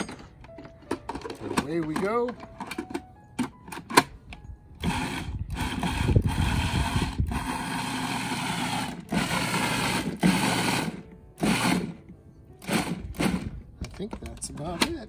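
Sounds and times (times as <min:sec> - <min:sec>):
food processor chopping: 0:04.9 - 0:11.9.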